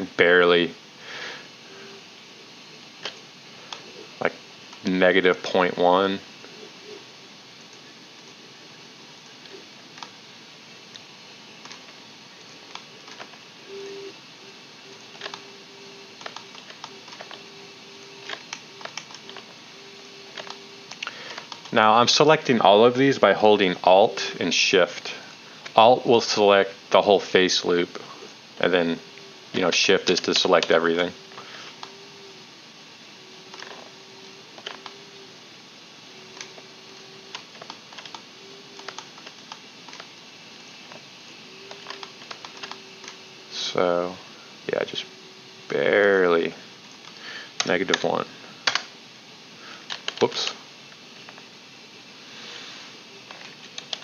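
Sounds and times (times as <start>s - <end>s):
faint hum: 0.0s - 54.0s
computer keyboard clicks: 38.8s - 40.1s, 41.7s - 43.2s.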